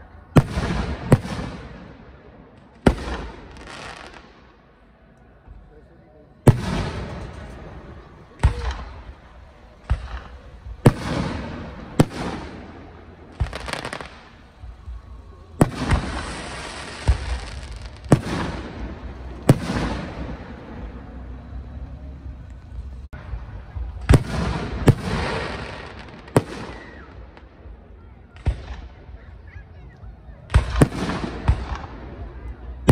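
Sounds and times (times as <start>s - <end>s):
crackling hiss: 6.3s - 29.2s.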